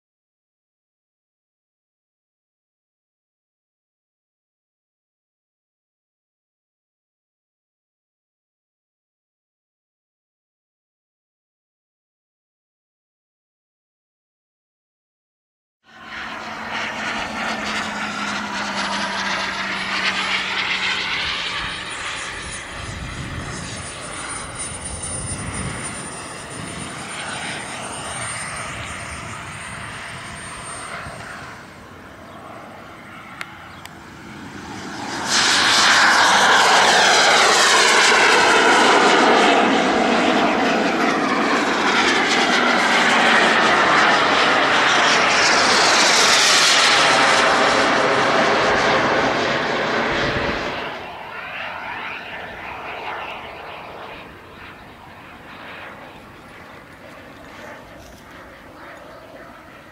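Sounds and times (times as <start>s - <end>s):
model jet turbine whine: 15.9s - 59.9s.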